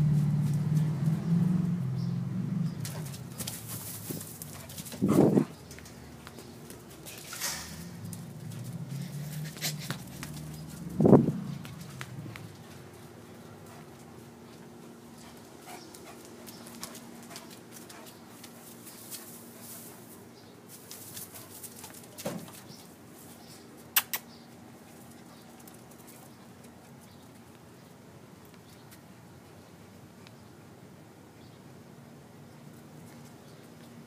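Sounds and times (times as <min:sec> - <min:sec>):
dogs scuffling on ground: 0:02.7 - 0:23.9.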